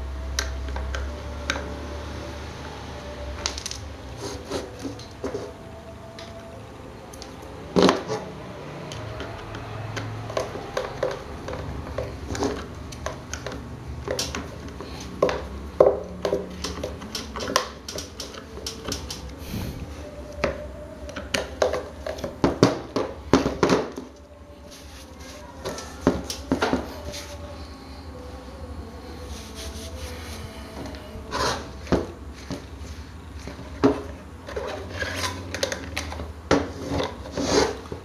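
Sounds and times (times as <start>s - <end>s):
fan motor parts clicking and knocking: 7.1s - 19.4s, 20.2s - 24.3s, 25.6s - 27.1s.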